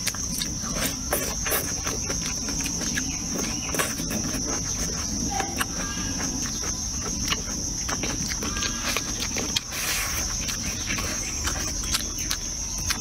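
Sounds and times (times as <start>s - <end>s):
chewing and eating: 0.0s - 13.0s
high-pitched insect drone: 0.0s - 13.0s.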